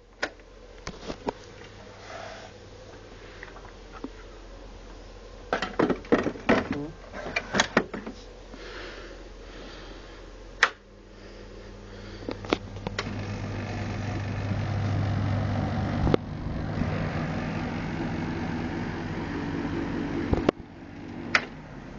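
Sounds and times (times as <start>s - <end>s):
dehumidifier humming: 0.0s - 21.9s
dehumidifier clicks: 10.6s - 10.9s, 12.2s - 13.2s, 14.2s - 16.3s, 20.2s - 21.7s.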